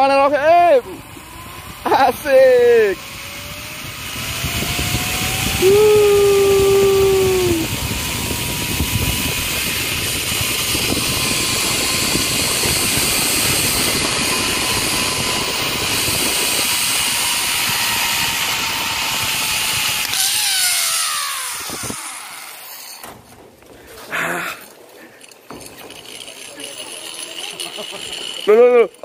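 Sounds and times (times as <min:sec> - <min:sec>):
zipline pulleys whining on cable: 0:00.0 - 0:23.3, 0:24.6 - 0:29.0
wind rushing across microphone: 0:00.8 - 0:20.2, 0:21.5 - 0:22.0.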